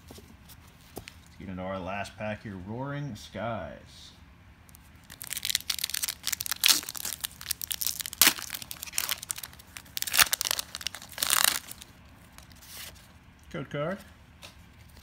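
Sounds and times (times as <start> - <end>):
foil wrapper tearing and crinkling: 5.0 - 12.8.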